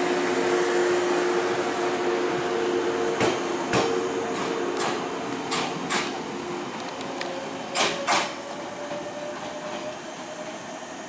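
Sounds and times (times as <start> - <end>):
electric train hum: 0.0 - 11.0
train wheels clacking over rail joints: 3.2 - 6.2, 6.8 - 10.6.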